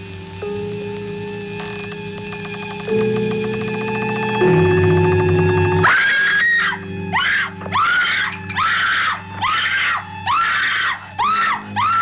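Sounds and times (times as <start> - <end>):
low steady drone: 0.0 - 12.0
woman screaming: 5.9 - 12.0.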